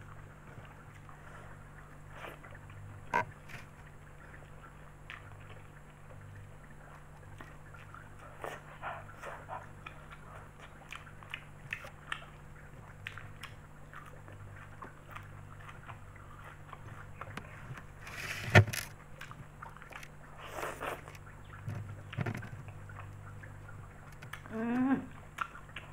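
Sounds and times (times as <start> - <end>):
steady low hum: 0.0 - 25.9
wet chewing: 0.0 - 25.9
noodle slurping: 20.4 - 21.1.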